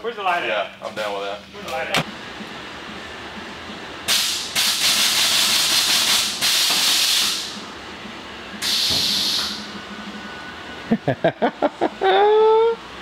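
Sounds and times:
air suspension hissing: 4.1s - 7.7s, 8.6s - 9.8s.

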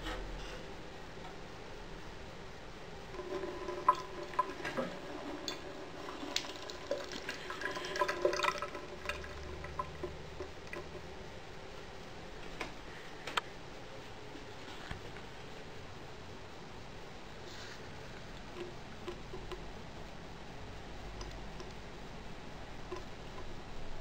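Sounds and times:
water dripping into basin: 6.3s - 11.1s.

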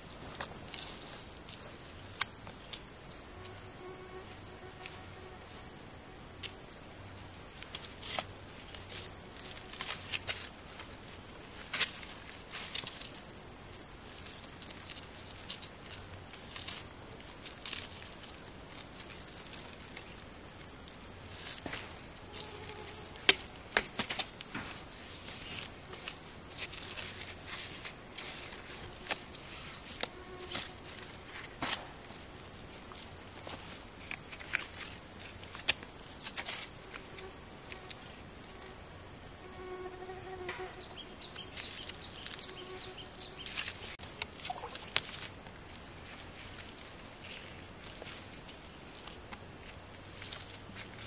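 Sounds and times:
high-pitched insect drone: 36.0s - 48.4s.

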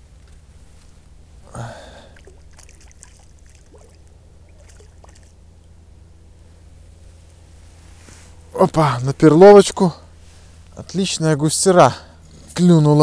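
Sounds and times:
low hum: 0.0s - 13.0s
river water lapping: 1.4s - 5.6s
water splash: 2.2s - 5.3s.

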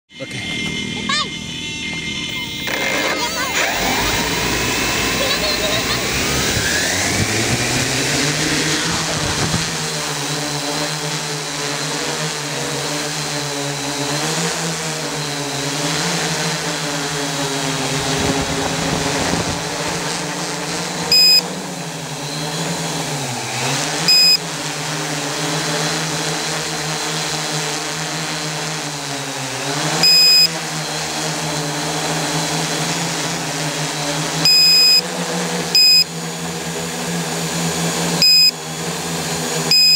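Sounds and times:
drone motors buzzing: 0.1s - 39.9s
short loud beeps: 21.1s - 21.5s, 24.1s - 24.4s, 30.0s - 30.5s, 34.5s - 35.0s, 35.8s - 36.1s, 38.2s - 38.5s.

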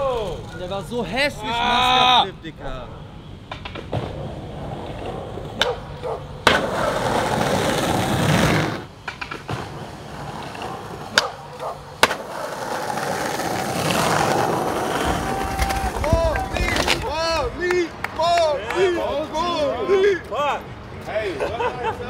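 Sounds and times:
skateboard wheels rolling on concrete: 3.0s - 22.0s
skateboard clacking on ground: 3.5s - 19.0s.

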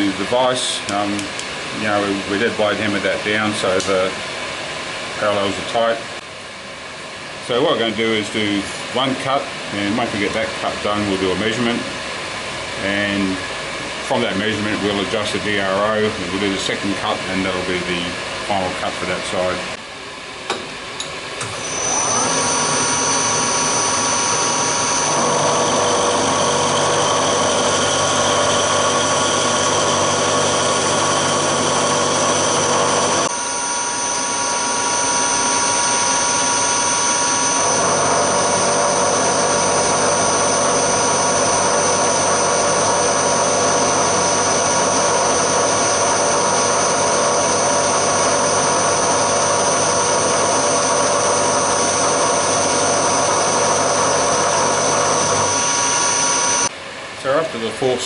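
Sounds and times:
milling machine whine: 20.5s - 57.7s.

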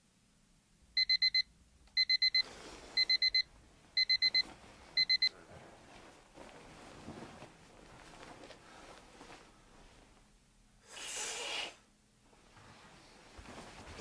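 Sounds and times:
digital alarm clock beeping: 1.0s - 4.4s, 5.0s - 5.3s.

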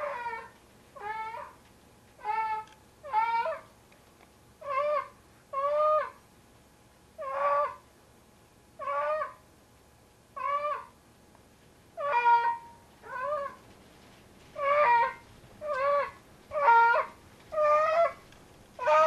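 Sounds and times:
cat yowling: 0.0s - 1.6s, 2.2s - 3.6s, 4.6s - 6.2s, 7.2s - 7.8s, 8.8s - 9.4s, 10.4s - 10.9s, 12.0s - 13.6s, 14.6s - 18.2s, 18.8s - 19.0s.

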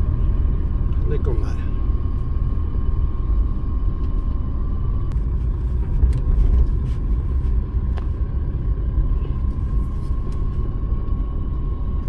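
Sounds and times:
car engine and tyre noise: 0.0s - 12.0s.

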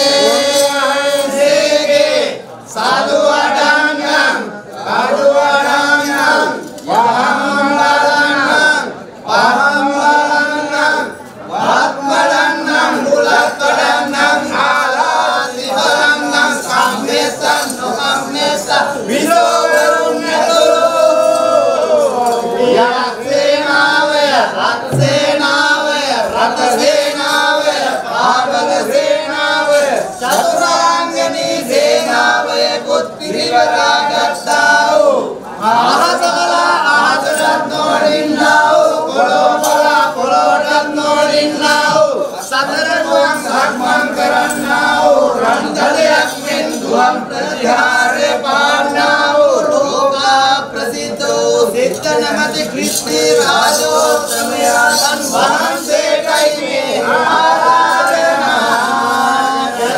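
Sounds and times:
men chanting verses: 0.0s - 59.9s.

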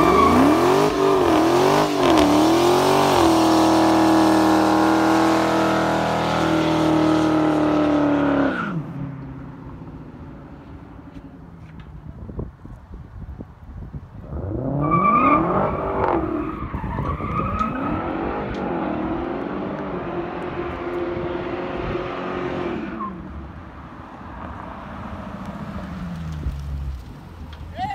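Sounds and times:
tyres squealing on pavement: 0.0s - 1.2s, 14.8s - 18.8s
car engine revving hard: 0.0s - 8.7s.

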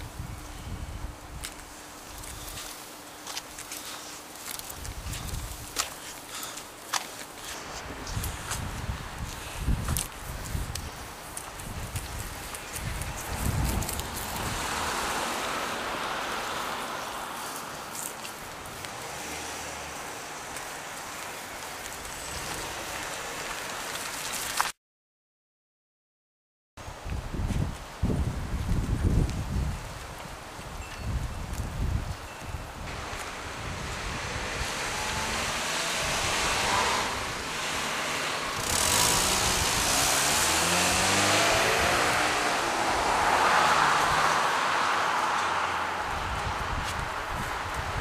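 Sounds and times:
street ambience hiss: 0.0s - 24.7s, 26.8s - 48.0s
cars passing: 5.2s - 24.5s, 32.9s - 48.0s.

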